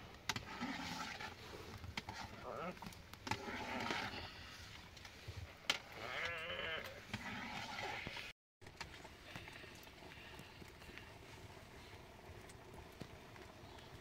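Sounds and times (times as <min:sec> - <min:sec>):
sheep bleating: 0:06.0 - 0:07.0.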